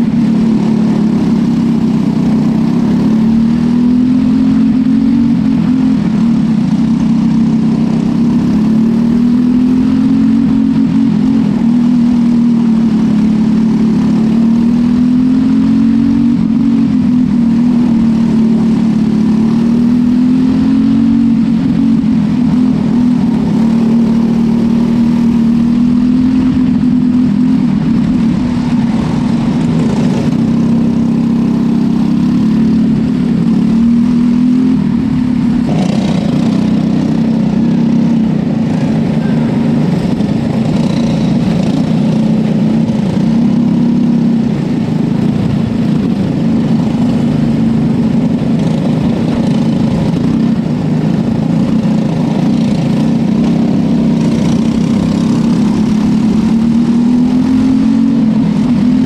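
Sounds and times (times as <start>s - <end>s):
kart engine running hard: 0.0s - 59.0s.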